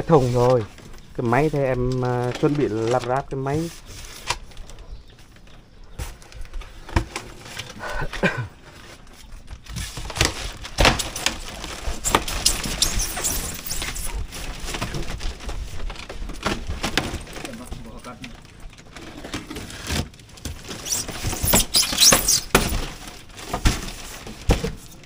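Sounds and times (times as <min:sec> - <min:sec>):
plastic wrap crinkling: 0:09.0 - 0:25.0.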